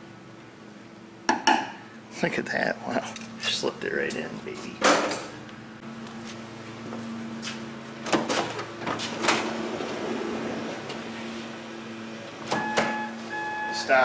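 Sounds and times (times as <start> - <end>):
sliding door rolling on track: 8.8 - 12.8
electronic beeping: 12.6 - 14.0.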